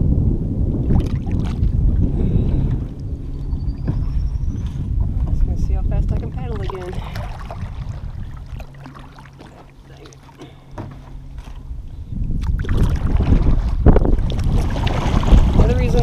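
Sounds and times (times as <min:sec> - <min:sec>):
wind rumbling on microphone: 0:00.0 - 0:16.0
kayak paddle splashing water: 0:06.4 - 0:11.7, 0:12.4 - 0:16.0.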